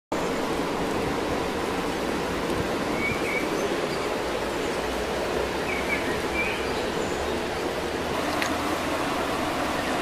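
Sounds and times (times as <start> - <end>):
running water rushing: 0.1 - 10.0
bird chirps: 3.0 - 4.1, 5.6 - 7.3.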